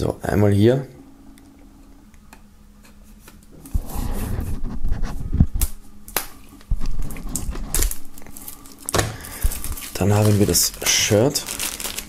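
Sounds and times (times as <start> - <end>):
plastic wrap crinkling: 6.6 - 12.0.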